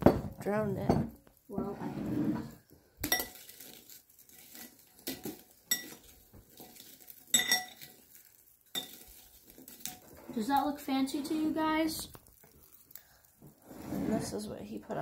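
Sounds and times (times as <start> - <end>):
metal spoon clinking on glass bowl: 3.0 - 3.5, 5.0 - 6.1, 7.3 - 8.0, 8.7 - 9.0.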